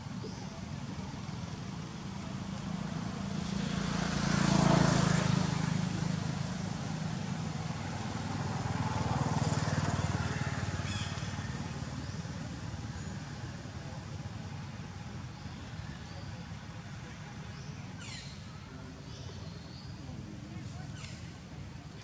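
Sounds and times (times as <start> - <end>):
vehicle engine passing by: 1.2 - 15.2.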